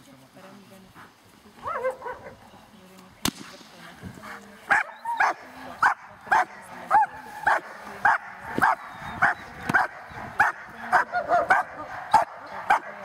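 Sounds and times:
dog barking: 0:01.6 - 0:02.4, 0:04.7 - 0:13.0.

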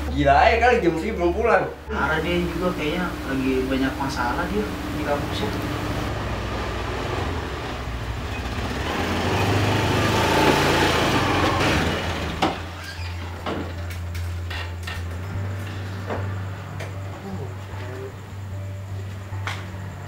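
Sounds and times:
motor scooter engine: 0:02.0 - 0:12.8.

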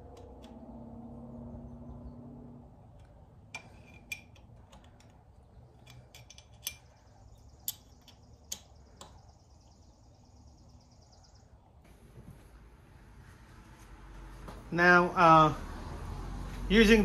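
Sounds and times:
metallic clicks and clinks: 0:03.0 - 0:09.2.

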